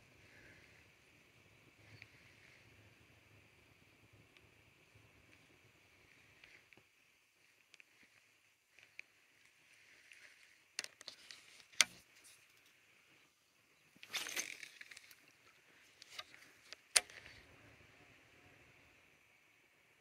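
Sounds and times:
faint high hiss: 0.0 - 20.0.

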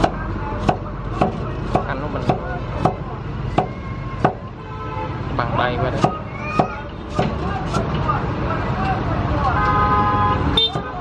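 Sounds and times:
cleaver chopping on wooden block: 0.0 - 3.0, 3.6 - 4.4, 6.0 - 7.9.

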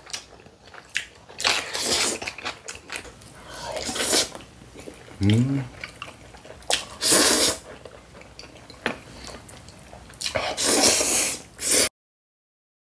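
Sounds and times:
person slurping noodles: 1.7 - 2.3, 3.6 - 4.4, 6.8 - 7.6, 10.2 - 11.9.

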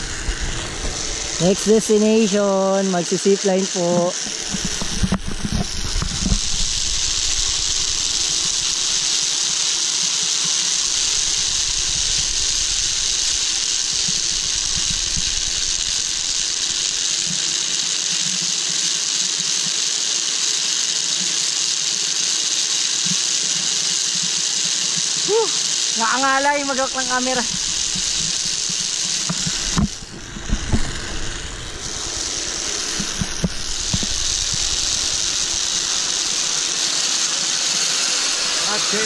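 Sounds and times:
wind hissing over microphone: 0.0 - 9.3, 10.7 - 17.3, 25.6 - 39.0.

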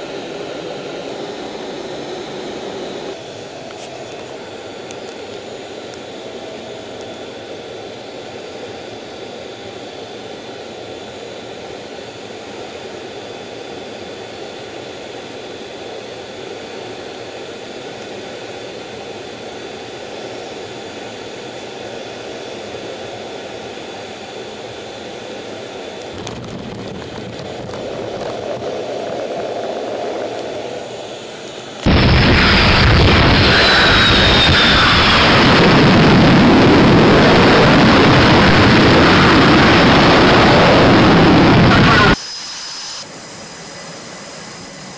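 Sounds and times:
jet engine rush and whine: 0.0 - 44.9
deep engine rumble: 26.0 - 42.2
loud jet blast: 26.1 - 31.0, 31.8 - 43.1.

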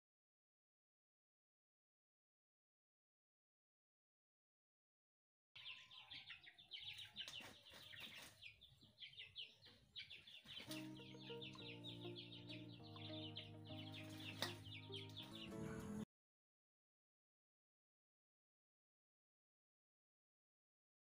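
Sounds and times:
small birds chirping: 5.6 - 16.0
background music with held notes: 10.6 - 16.1.

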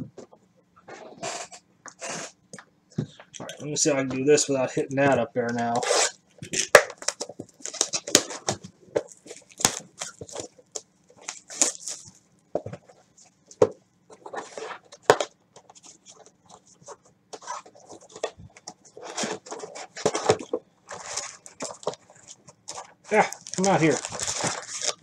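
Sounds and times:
crinkly wrapping rustling: 5.6 - 25.0.

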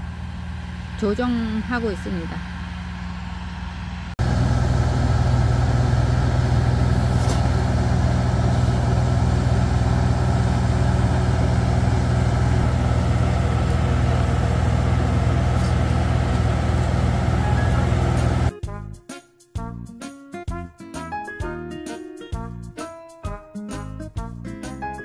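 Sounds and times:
tractor engine running: 0.0 - 18.5.

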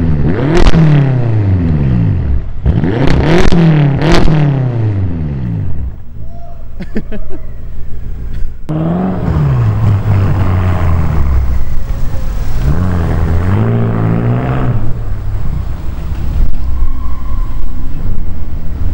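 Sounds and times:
car exhaust note: 7.4 - 18.9
even rushing noise: 7.4 - 18.9.

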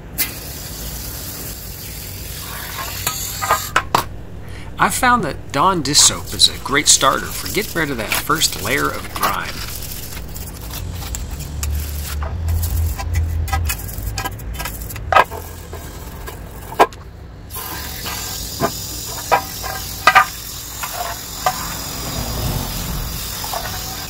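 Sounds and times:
hose spraying water: 0.2 - 14.2, 17.5 - 24.0.

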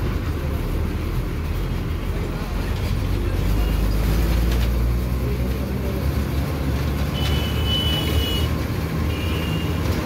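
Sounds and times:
road traffic rumble: 0.0 - 10.0.

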